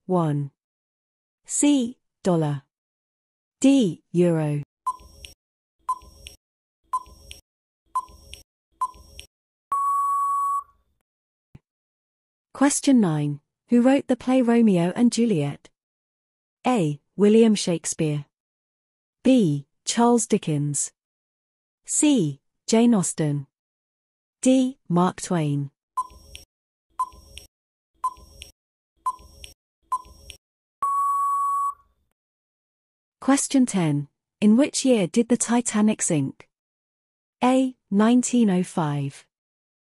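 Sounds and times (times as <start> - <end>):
countdown timer ticks: 4.9 - 6.4, 7.0 - 7.4, 8.0 - 10.6, 27.0 - 28.5
steady beep: 9.7 - 10.7, 30.8 - 31.8.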